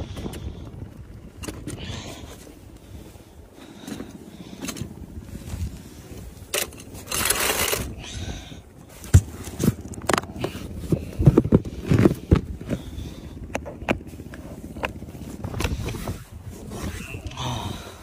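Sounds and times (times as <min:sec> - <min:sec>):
knocks and clunks of a case: 0:09.0 - 0:14.1.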